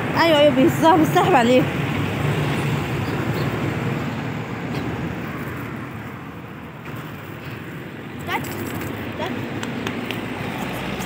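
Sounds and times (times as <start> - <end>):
city street traffic: 0.0 - 11.0.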